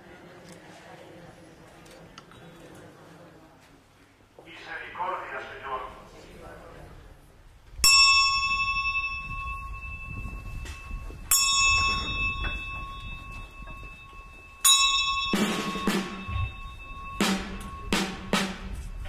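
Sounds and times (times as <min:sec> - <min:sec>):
small bell ringing: 0:07.8 - 0:18.3
procession drums beating: 0:13.8 - 0:19.0.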